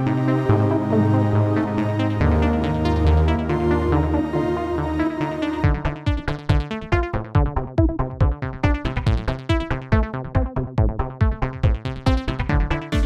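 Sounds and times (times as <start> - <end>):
electronic dance music: 0.0 - 7.0.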